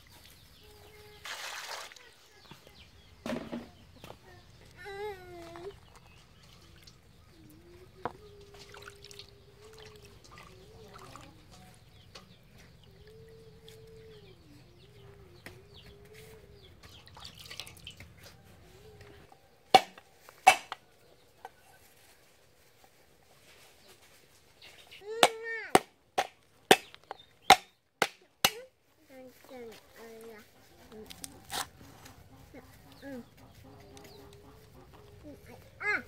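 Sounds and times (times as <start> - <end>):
knife chopping on wooden board: 19.8 - 20.8.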